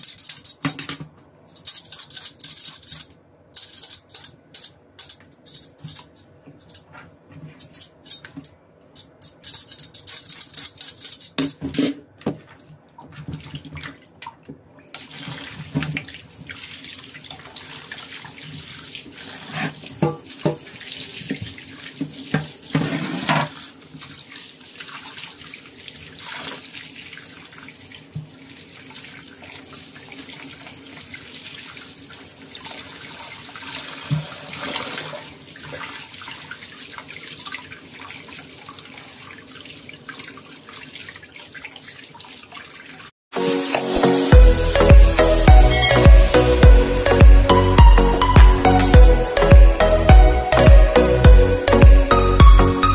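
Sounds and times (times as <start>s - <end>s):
tap water running into sink: 15.0s - 24.3s, 32.7s - 43.0s.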